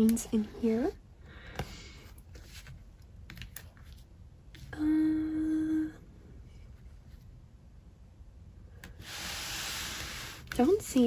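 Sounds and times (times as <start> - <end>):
person humming: 4.7 - 6.0.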